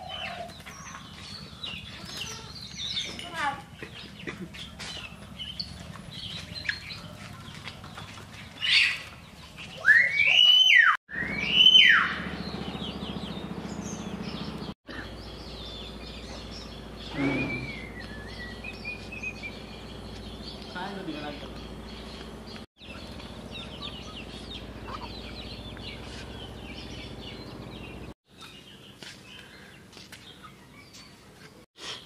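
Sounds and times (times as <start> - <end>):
birds chirping: 0.0 - 32.0
loud rising and falling bird call: 9.7 - 20.8.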